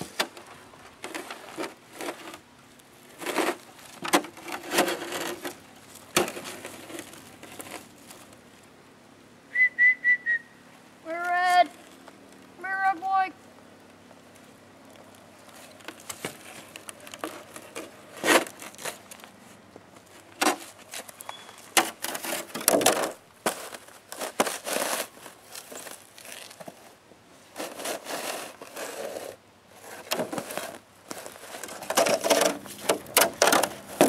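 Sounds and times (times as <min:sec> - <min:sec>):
footsteps crunching on icy snow: 0:14.3 - 0:32.9.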